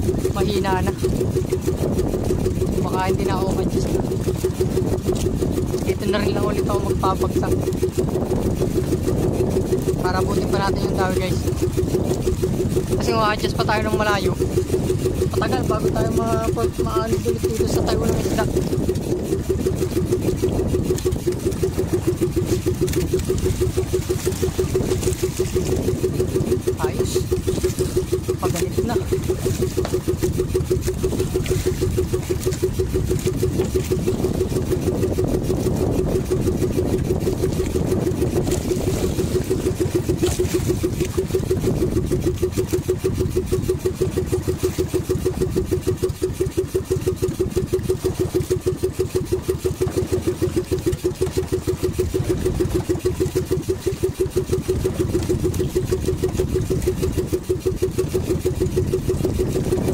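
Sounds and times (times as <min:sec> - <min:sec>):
boat engine running: 0:00.0 - 0:59.9.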